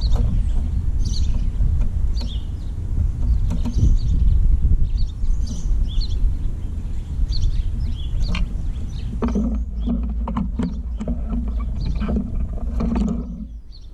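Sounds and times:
bird pecking dull knocks: 0:00.0 - 0:04.3, 0:08.1 - 0:13.6
high bird chirps: 0:00.0 - 0:12.2
wind rumble on microphone: 0:00.0 - 0:13.9.

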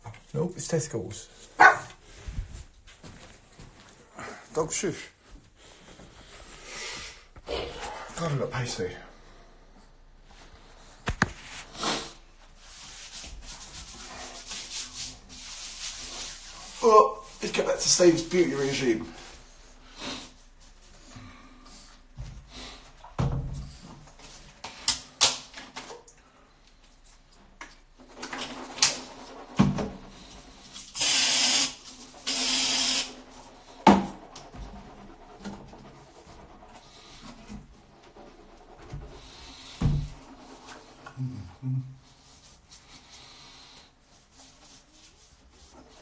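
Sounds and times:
aerosol can spraying: 0:31.0 - 0:33.1.

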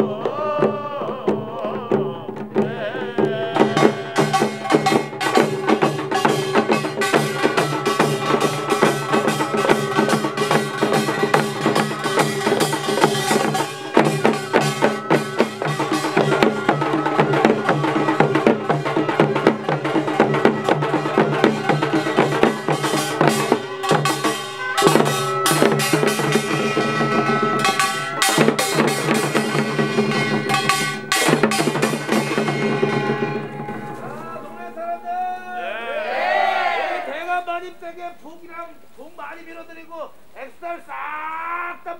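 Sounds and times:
drums beaten rapidly: 0:00.0 - 0:37.9
ringing metal percussion: 0:04.1 - 0:35.8.

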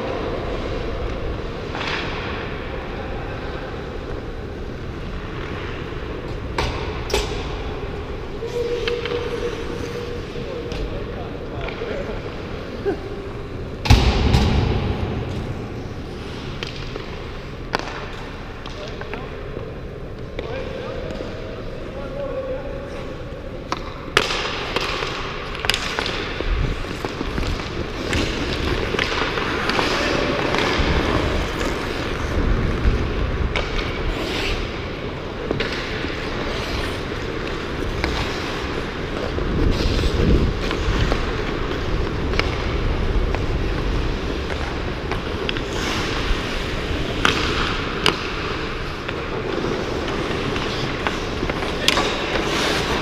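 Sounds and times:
sticks striking pucks: 0:01.7 - 0:02.6, 0:13.8 - 0:19.3, 0:23.6 - 0:32.6, 0:34.6 - 0:53.0
pucks hitting boards: 0:16.4 - 0:19.3, 0:23.7 - 0:34.0, 0:34.6 - 0:53.0
skate blades scraping ice: 0:24.1 - 0:53.0.

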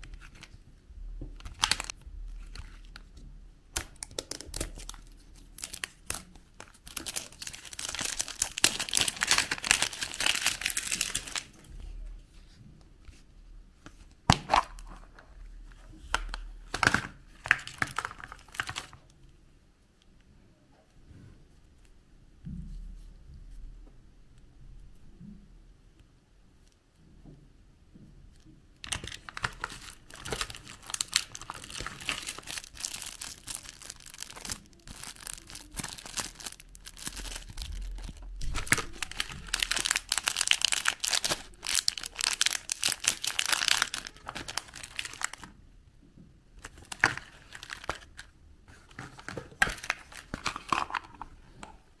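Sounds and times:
plastic bag crinkling and tearing: 0:01.4 - 0:03.0, 0:03.8 - 0:11.6, 0:16.7 - 0:19.0, 0:28.8 - 0:45.5, 0:46.6 - 0:51.2.

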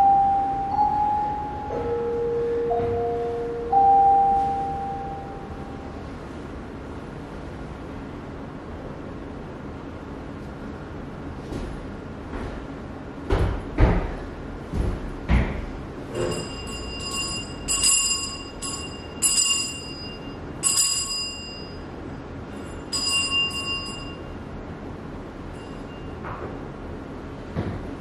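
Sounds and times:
small metal bell struck: 0:16.2 - 0:21.8, 0:22.8 - 0:24.3.

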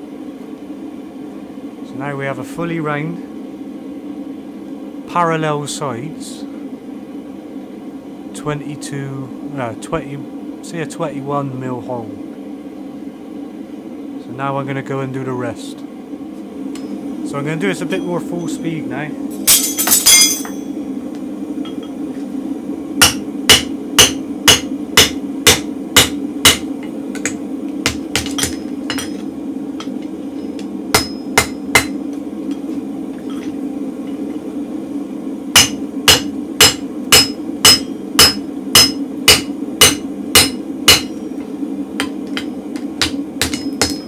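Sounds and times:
gas forge roaring: 0:00.0 - 0:44.0
hammer blows ringing off anvil: 0:35.6 - 0:41.2.

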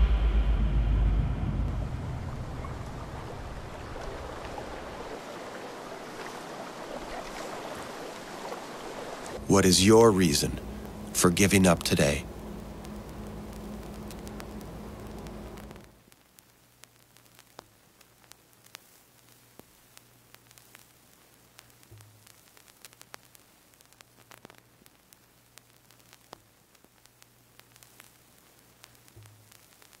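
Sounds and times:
low droning tone: 0:00.0 - 0:04.0, 0:09.4 - 0:15.9
low hum: 0:00.0 - 0:05.1, 0:09.3 - 0:16.0
faint static hiss: 0:00.0 - 0:30.0
sharp clicks and crackles: 0:10.6 - 0:30.0.

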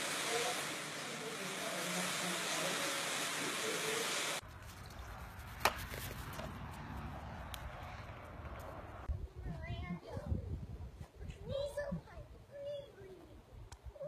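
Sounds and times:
heavy rain pouring: 0:00.0 - 0:04.4.

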